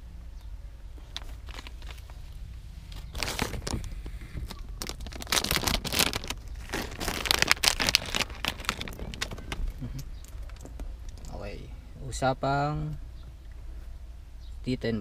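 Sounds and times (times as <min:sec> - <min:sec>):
plastic bag crinkling: 0:01.0 - 0:02.3, 0:02.9 - 0:11.3.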